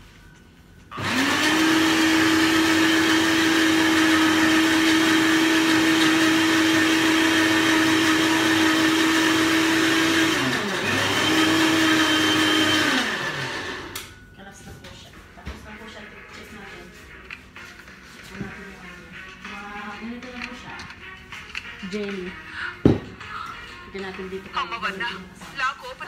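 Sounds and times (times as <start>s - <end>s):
blender running: 0.9s - 14.1s.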